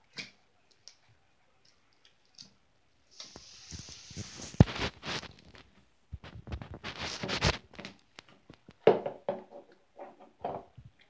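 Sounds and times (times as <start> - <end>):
rustling and scraping: 3.1 - 10.9.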